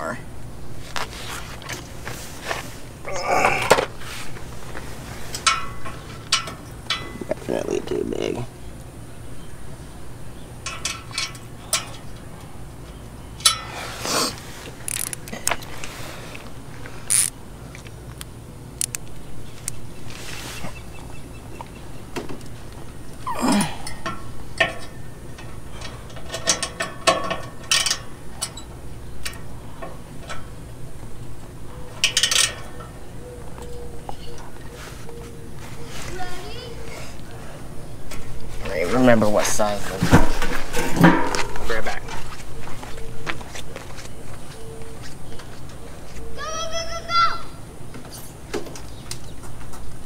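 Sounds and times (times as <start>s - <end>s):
metal tools clinking and rattling: 5.3s - 8.0s, 10.6s - 12.2s, 13.4s - 13.8s, 23.8s - 28.7s, 31.9s - 33.0s
socket ratchet clicking: 14.8s - 15.3s, 17.1s - 17.4s, 18.2s - 19.0s.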